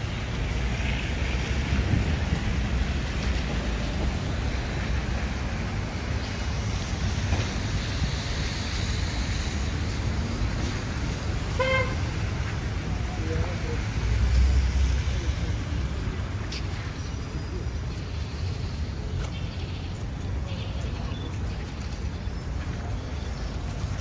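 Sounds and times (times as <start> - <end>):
traffic rumble: 0.0 - 24.0
car horn toot: 11.5 - 12.0.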